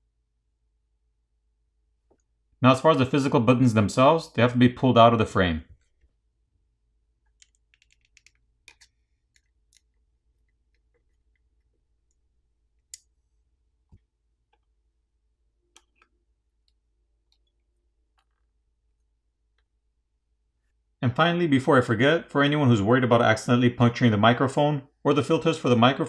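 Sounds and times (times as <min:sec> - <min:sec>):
small clicks and ticks: 0:07.2 - 0:12.2, 0:15.7 - 0:19.7.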